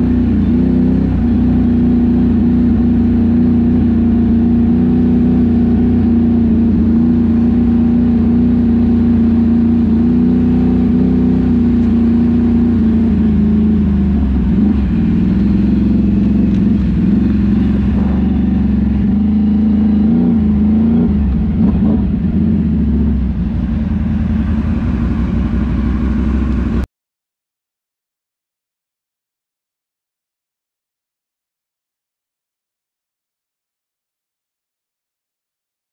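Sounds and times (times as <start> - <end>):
vehicle engine droning: 0.0 - 26.9.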